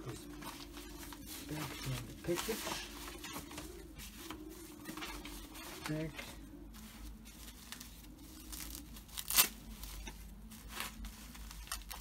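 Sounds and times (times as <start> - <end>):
wrapping paper crinkling: 0.0 - 12.0.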